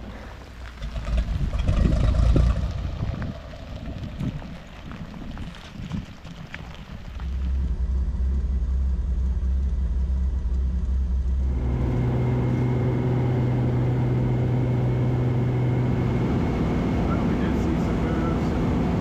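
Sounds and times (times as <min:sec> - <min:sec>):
propeller plane engine from cabin: 0:07.5 - 0:19.0.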